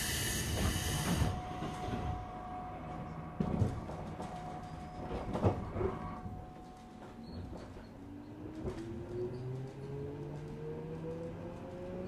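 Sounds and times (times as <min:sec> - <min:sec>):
train clunks: 0:00.0 - 0:08.0
low train rumbling: 0:00.0 - 0:12.0.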